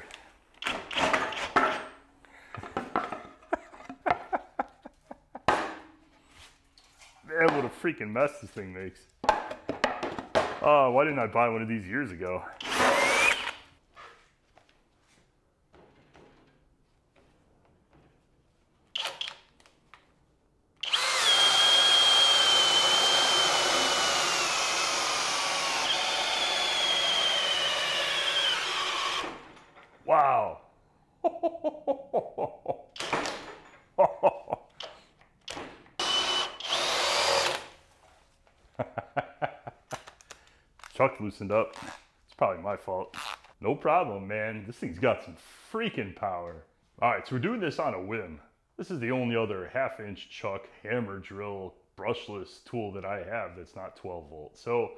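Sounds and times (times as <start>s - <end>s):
hammer drill boring into wood: 0.6s - 1.6s, 12.6s - 13.6s, 19.0s - 19.4s, 20.8s - 29.6s, 33.0s - 33.5s, 34.8s - 37.8s
wood and tool clattering: 0.6s - 4.4s, 33.0s - 34.0s
drill clicks: 12.6s - 13.6s, 19.0s - 19.7s, 20.8s - 29.6s, 34.8s - 37.8s.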